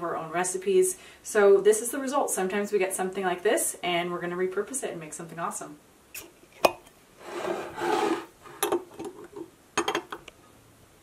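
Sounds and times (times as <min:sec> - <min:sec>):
metal scraping: 0:07.2 - 0:08.7.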